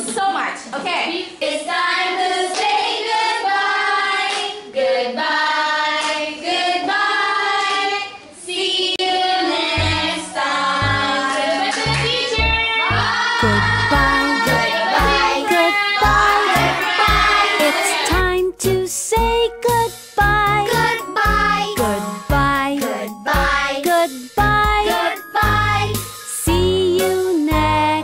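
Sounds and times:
children singing in unison: 1.7 - 12.0, 12.9 - 18.1
low beat: 12.9 - 19.4.

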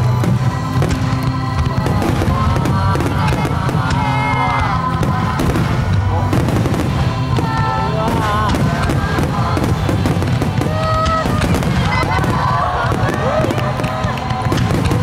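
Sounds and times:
fireworks bangs and crackles: 0.0 - 15.0
music with sung melody: 0.0 - 15.0.

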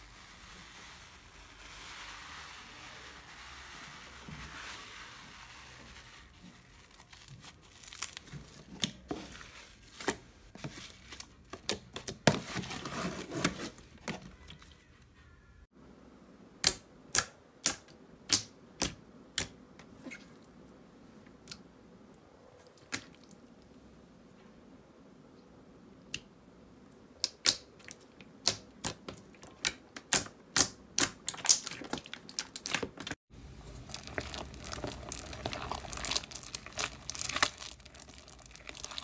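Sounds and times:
slime crackling and popping: 7.0 - 9.1, 27.2 - 39.0.

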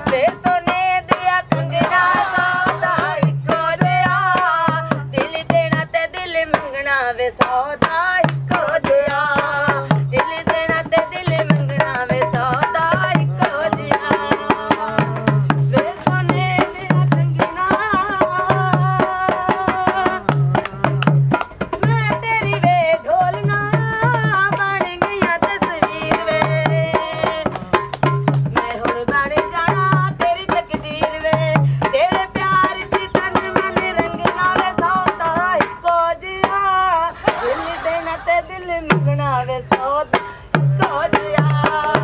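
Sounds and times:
hand drum beating: 7.4 - 36.0.

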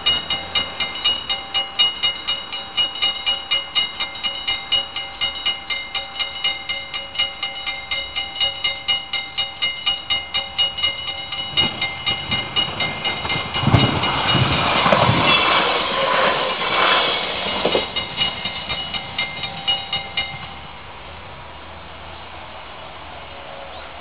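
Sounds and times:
level crossing bell ringing: 0.0 - 14.6, 17.5 - 20.7
train rumble and wheel clatter: 0.0 - 24.0.

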